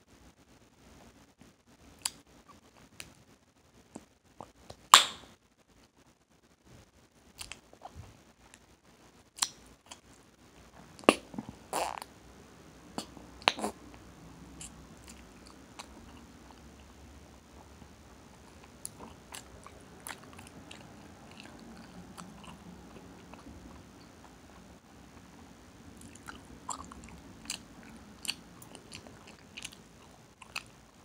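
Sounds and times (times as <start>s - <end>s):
open-mouthed gum chewing: 11.0s - 12.1s, 13.0s - 13.9s, 14.6s - 17.0s, 17.6s - 24.4s, 26.0s - 30.9s.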